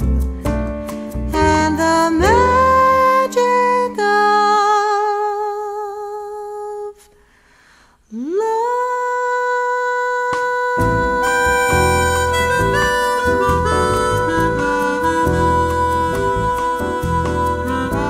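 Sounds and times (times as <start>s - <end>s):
jazz band playing: 0.0s - 3.4s, 10.8s - 18.0s
woman singing jazz ballad: 1.4s - 7.0s, 8.1s - 18.0s.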